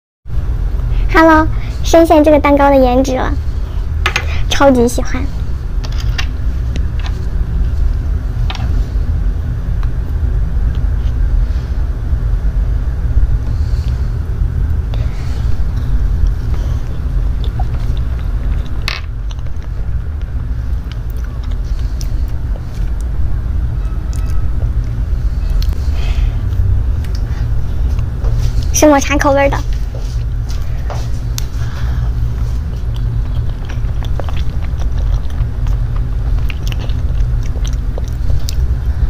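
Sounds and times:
low rumble: 0.3 - 39.0
soft chewing: 14.8 - 23.2, 29.6 - 39.0.

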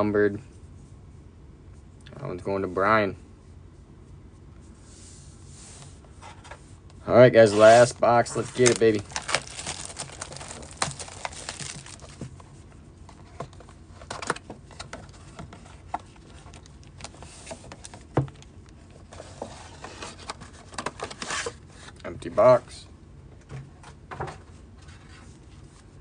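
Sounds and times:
plastic wrap crinkling and tearing: 7.6 - 12.4
cardboard box clicks and rustles: 8.3 - 12.4.

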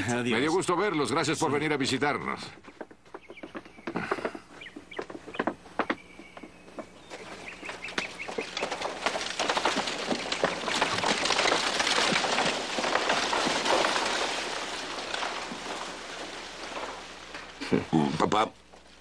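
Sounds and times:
wheels rolling on dirt: 0.0 - 19.0
horse hoofbeats: 2.1 - 13.5.

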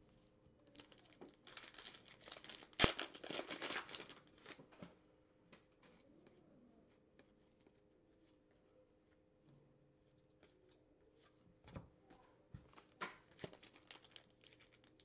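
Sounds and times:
foil wrapper tearing and crinkling: 0.8 - 4.6, 13.3 - 15.0.

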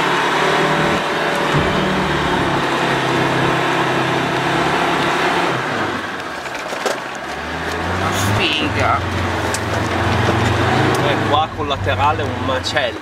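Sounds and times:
off-road vehicle engine straining: 0.0 - 13.0
dense rushing noise: 0.6 - 5.9.

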